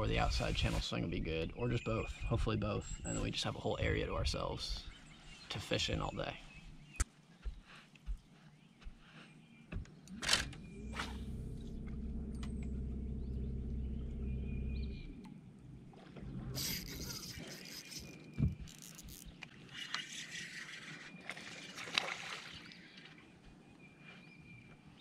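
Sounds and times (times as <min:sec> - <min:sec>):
electric motor humming: 0:10.3 - 0:15.2
fishing reel clicks: 0:16.6 - 0:19.2.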